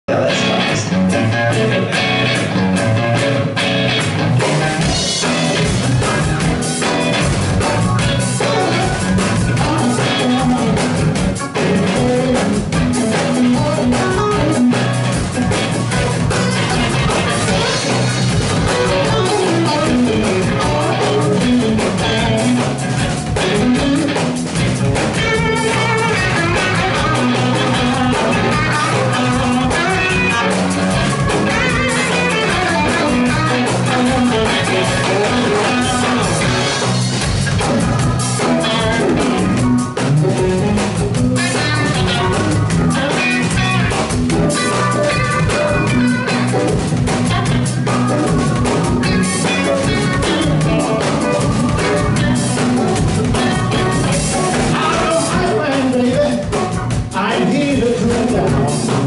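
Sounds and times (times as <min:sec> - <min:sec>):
bass guitar: 0:00.0 - 0:59.0
drum kit: 0:00.1 - 0:59.0
electric guitars: 0:00.1 - 0:59.0
keyboard: 0:00.1 - 0:59.0.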